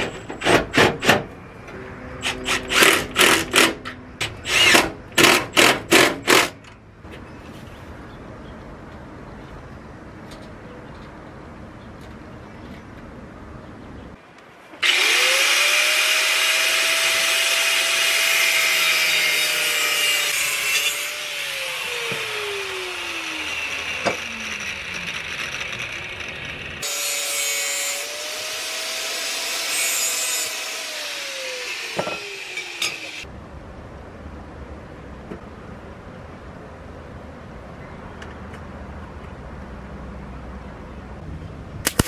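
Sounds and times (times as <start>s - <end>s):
angle grinder cutting steel: 14.8s - 33.3s.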